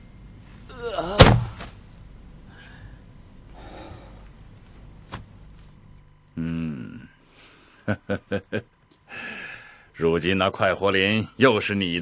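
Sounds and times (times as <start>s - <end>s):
crickets chirping: 0.0s - 12.0s
heavy blow thud: 1.2s - 1.8s.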